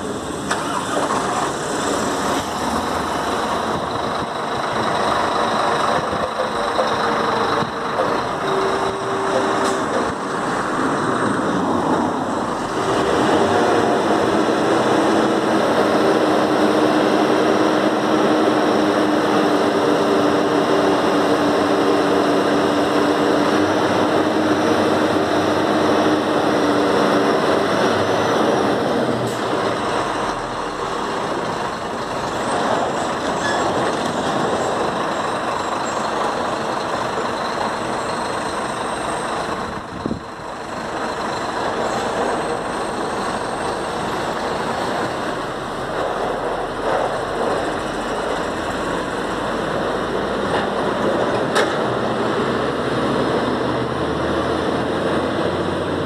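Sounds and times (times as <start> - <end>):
truck diesel engine running: 0.0 - 56.0.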